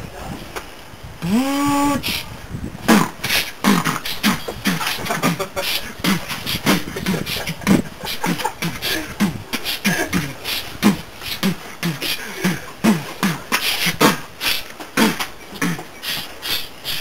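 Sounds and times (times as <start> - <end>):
person beatboxing: 1.2 - 17.0.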